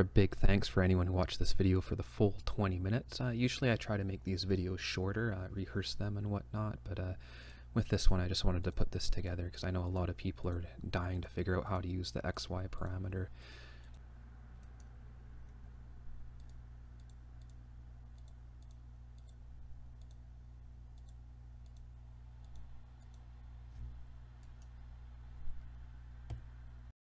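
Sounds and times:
steady low hum: 0:00.0 - 0:26.9
computer mouse clicks: 0:16.4 - 0:19.4, 0:20.0 - 0:20.2, 0:21.0 - 0:23.2.

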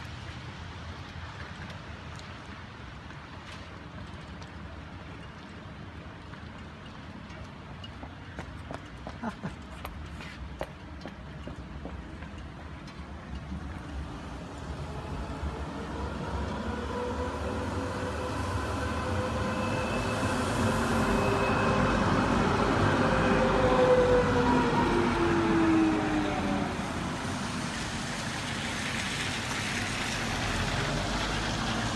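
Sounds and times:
tram passing on wet rails: 0:00.0 - 0:31.9
hiss of wet street: 0:13.0 - 0:31.9.

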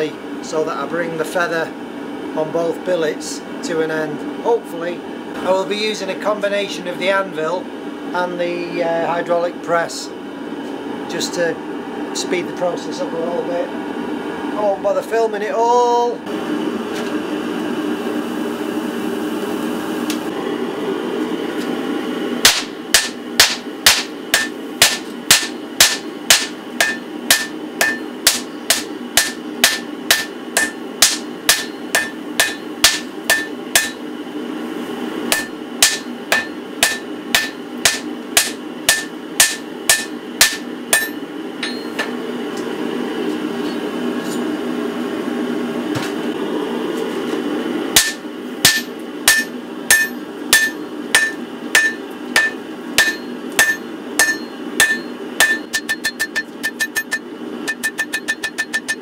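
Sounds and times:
hammer striking steel on anvil: 0:22.4 - 0:34.0, 0:35.3 - 0:42.2, 0:48.0 - 0:59.0.

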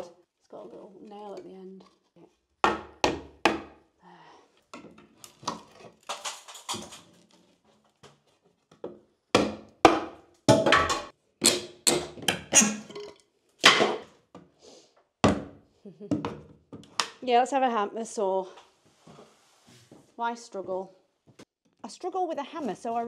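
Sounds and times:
wood scraping and creaking: 0:04.8 - 0:08.9.

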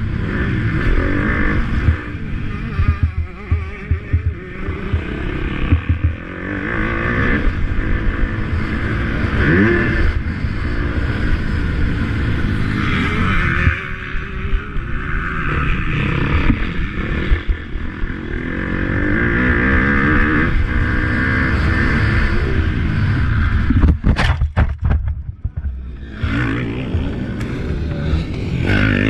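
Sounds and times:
motorcycle engines revving: 0:00.0 - 0:24.0, 0:25.2 - 0:29.0
sharp knocks: 0:05.7 - 0:06.2, 0:23.7 - 0:25.8.

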